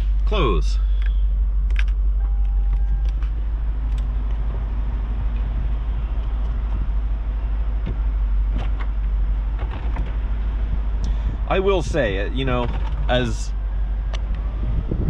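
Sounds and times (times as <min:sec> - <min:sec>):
retractable roof mechanical hum: 0:01.6 - 0:15.0
brief steady tone: 0:02.2 - 0:03.3.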